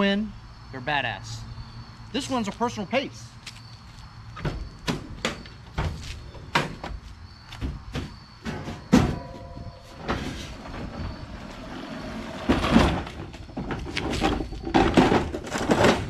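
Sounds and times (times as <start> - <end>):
clatter and scraping: 8.4 - 16.0
lawn mower knocking and clunking: 12.3 - 16.0.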